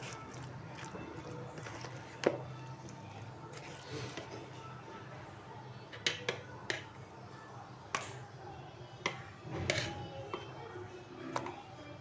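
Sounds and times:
spoon scraping a bowl: 9.6 - 10.4.

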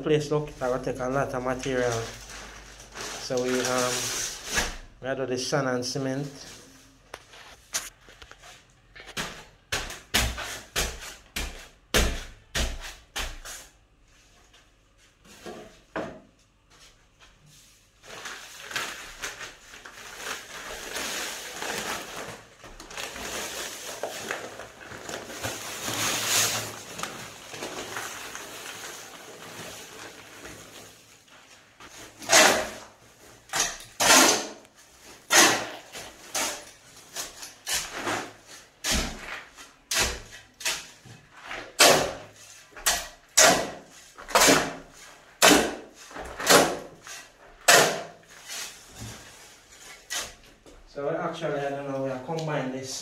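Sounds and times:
shovel scraping concrete: 32.0 - 32.9, 33.5 - 48.8.

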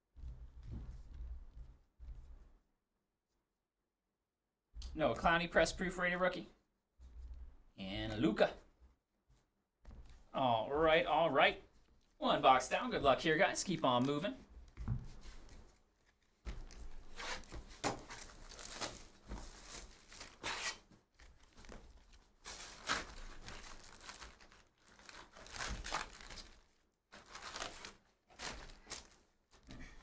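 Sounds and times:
foil packs crinkling and rustling: 16.0 - 29.3.

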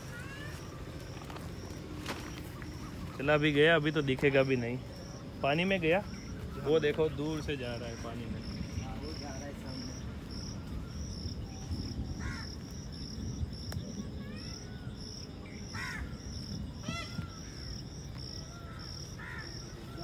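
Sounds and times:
cricket chirping: 0.0 - 20.0.

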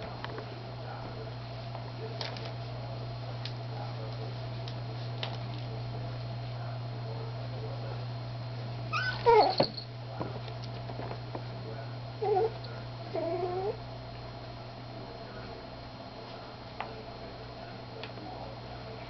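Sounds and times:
puppy yelp: 8.9 - 9.8.

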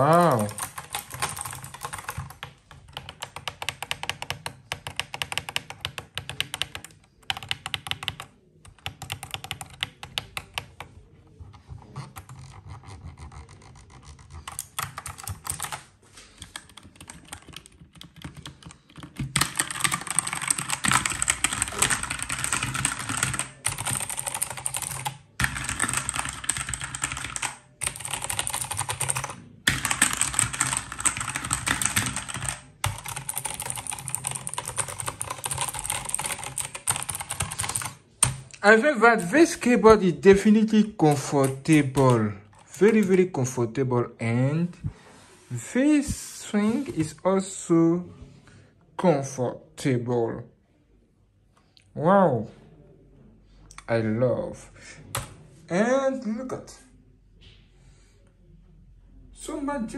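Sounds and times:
fast typing on mechanical keyboard: 0.0 - 10.9, 11.8 - 15.8, 16.4 - 38.4, 41.1 - 43.2.

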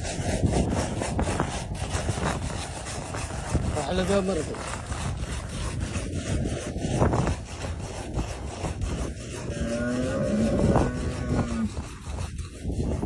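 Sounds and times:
camel moaning: 9.0 - 12.1.

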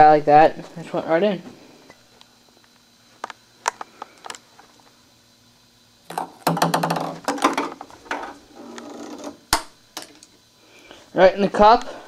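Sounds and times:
ping pong ball bouncing: 6.1 - 7.6
clattering knocks and rattles: 6.1 - 8.4.

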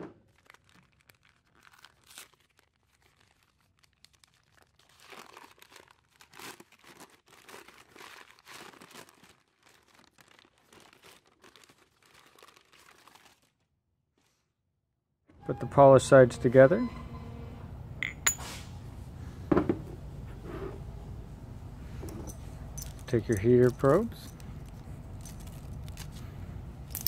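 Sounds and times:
paper crinkling and rustling: 0.2 - 14.4, 23.6 - 26.4.

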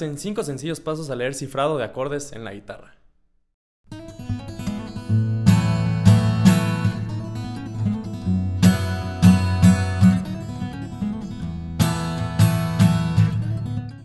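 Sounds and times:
strummed guitar chords: 3.9 - 14.0.

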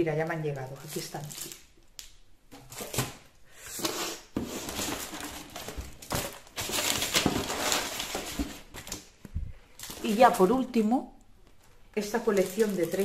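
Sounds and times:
plastic-wrapped paper crinkling: 0.3 - 2.1, 4.5 - 10.8, 11.4 - 13.0.

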